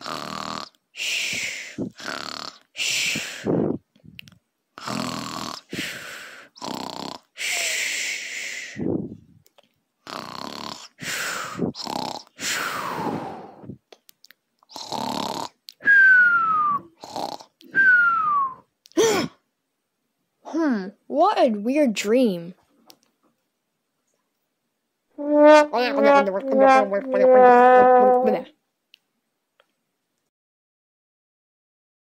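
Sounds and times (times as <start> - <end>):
rasping snores: 0.0 - 0.8, 1.8 - 2.7, 4.8 - 7.6, 10.1 - 13.7, 14.7 - 15.6, 17.0 - 17.5, 25.2 - 28.4
whistling snores: 14.7 - 18.6.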